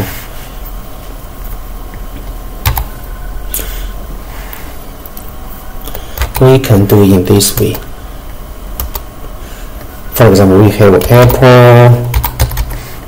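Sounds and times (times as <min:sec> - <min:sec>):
background hiss and hum: 0:00.0 - 0:13.0
computer keyboard keystrokes: 0:02.6 - 0:02.9, 0:05.9 - 0:06.5, 0:08.8 - 0:09.0, 0:12.1 - 0:12.8.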